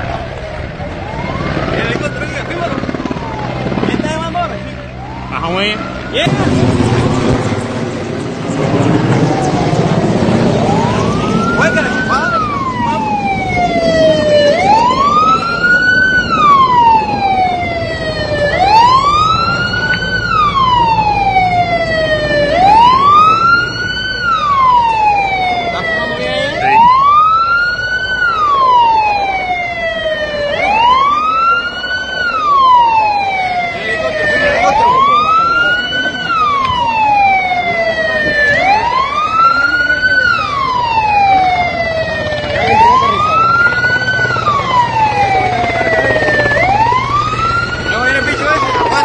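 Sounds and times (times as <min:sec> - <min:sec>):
emergency siren wailing: 0:00.0 - 0:49.0
low rumble: 0:05.8 - 0:11.6.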